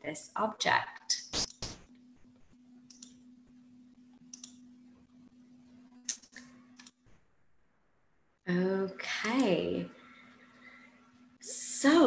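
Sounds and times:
low steady hum: 0:00.0 - 0:12.0
computer clicks: 0:02.8 - 0:03.2, 0:04.2 - 0:04.6, 0:06.0 - 0:07.0.

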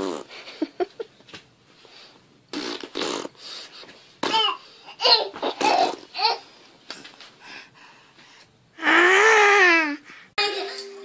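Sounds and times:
baby blowing raspberries: 0:00.0 - 0:00.4, 0:02.5 - 0:03.9
baby vocal sounds: 0:04.2 - 0:06.5, 0:08.8 - 0:10.4.

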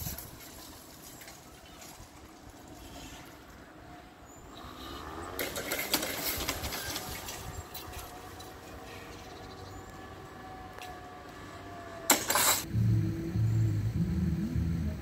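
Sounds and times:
barrier drive whine: 0:09.8 - 0:15.0.

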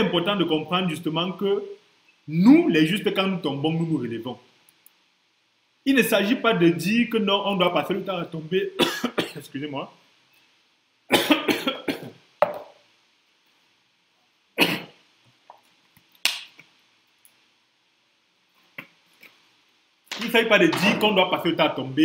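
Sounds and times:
faint clicks: 0:04.6 - 0:05.0
man coughing: 0:08.8 - 0:09.4, 0:11.1 - 0:12.2, 0:14.6 - 0:15.0
throat-clearing: 0:14.6 - 0:15.0.

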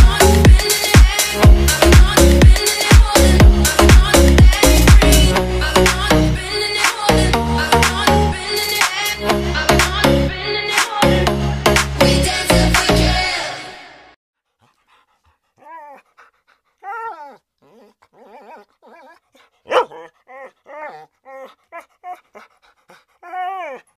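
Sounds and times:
dance music: 0:00.0 - 0:06.3
dog whining: 0:15.6 - 0:22.6, 0:23.2 - 0:24.0.

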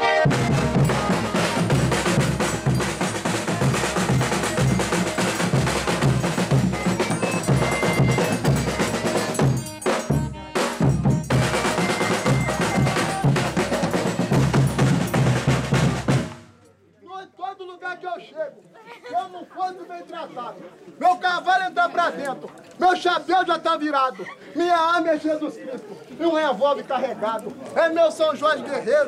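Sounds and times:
accordion: 0:00.0 - 0:15.1
caixa drums beating quickly: 0:00.0 - 0:16.5.

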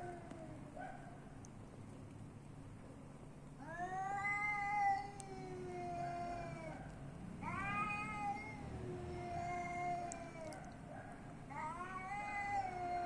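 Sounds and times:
cat yowling: 0:03.6 - 0:10.8, 0:11.5 - 0:13.0.

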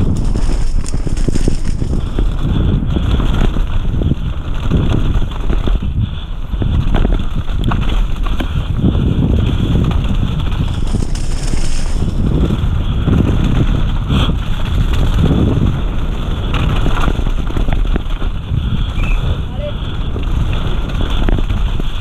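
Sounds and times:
bike knocks and rattles: 0:00.0 - 0:22.0
bike tyres rumbling on dirt: 0:00.0 - 0:22.0.

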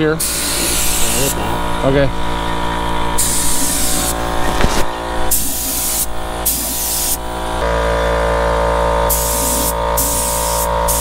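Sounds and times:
spray gun hissing: 0:00.2 - 0:01.6, 0:03.2 - 0:04.3, 0:05.3 - 0:07.6, 0:09.1 - 0:11.0.

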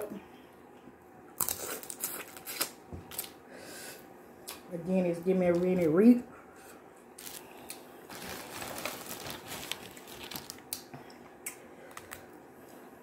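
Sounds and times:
shells cracking and peeling: 0:07.2 - 0:10.9.

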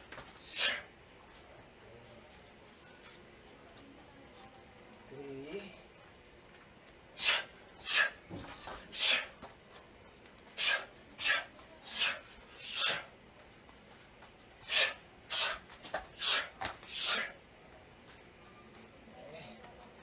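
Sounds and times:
sharp hissing exhalations: 0:00.4 - 0:00.9, 0:07.2 - 0:09.4, 0:10.5 - 0:13.1, 0:14.6 - 0:17.4.

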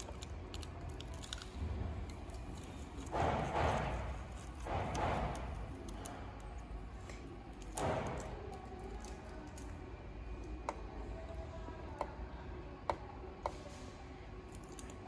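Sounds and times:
tape rustling: 0:00.0 - 0:06.6.

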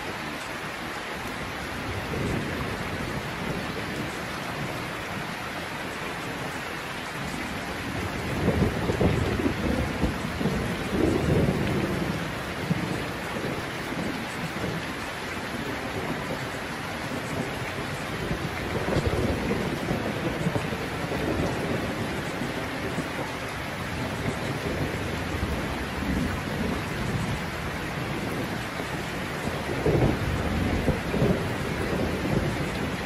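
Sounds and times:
steady rain: 0:00.0 - 0:33.0
thunder rumbling: 0:07.2 - 0:33.0.

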